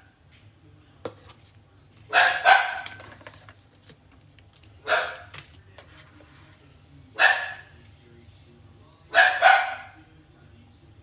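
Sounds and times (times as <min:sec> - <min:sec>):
dog barking: 0:02.1 - 0:03.0, 0:04.8 - 0:05.3, 0:07.2 - 0:07.7, 0:09.1 - 0:10.0.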